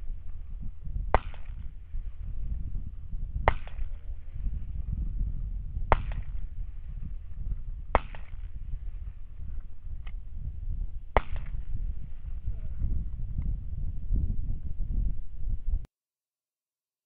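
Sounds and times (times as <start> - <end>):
steady low rumble: 0.0 - 15.9
rifle shots with echo: 1.1 - 2.2, 3.4 - 4.5, 5.8 - 7.0, 7.9 - 9.0, 11.1 - 11.8.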